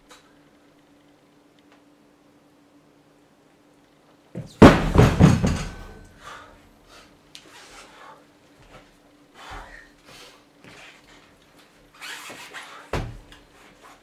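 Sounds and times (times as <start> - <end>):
kettlebells thudding onto a mat: 4.4 - 6.1, 12.9 - 13.2.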